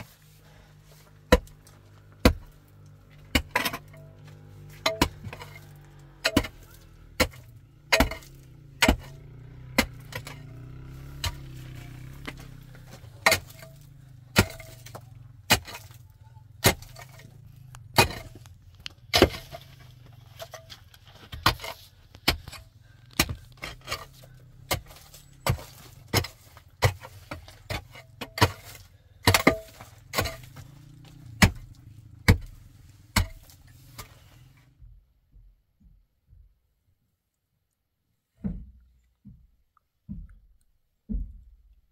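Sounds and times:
pickaxe striking dirt and stone: 1.0s - 34.3s.

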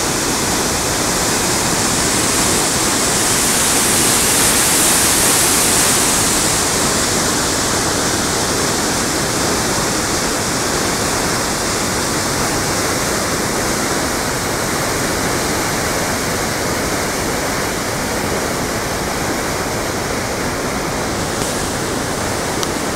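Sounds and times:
water roaring through dam: 0.0s - 22.9s.

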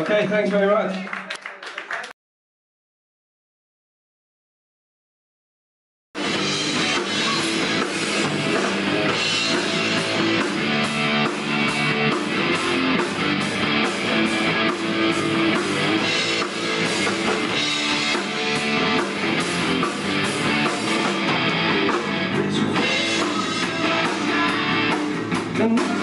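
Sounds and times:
distorted electric guitar: 6.2s - 26.0s
drum kit with cymbals: 6.2s - 26.0s
electric bass: 6.2s - 26.0s.

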